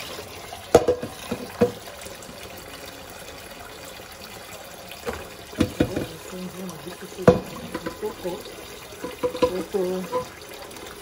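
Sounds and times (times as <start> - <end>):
saucepan clanking against sink: 0.7 - 1.8, 5.0 - 6.2, 7.2 - 8.3, 9.0 - 10.4
tap running into steel sink: 0.7 - 1.9, 5.0 - 6.2, 7.2 - 8.4, 9.0 - 10.4.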